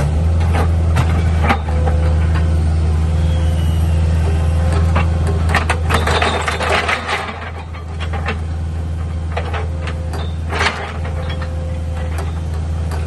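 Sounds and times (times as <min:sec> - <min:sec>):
diesel engine running: 0:00.0 - 0:13.0
auger scraping and clattering: 0:00.2 - 0:02.6, 0:04.6 - 0:13.0.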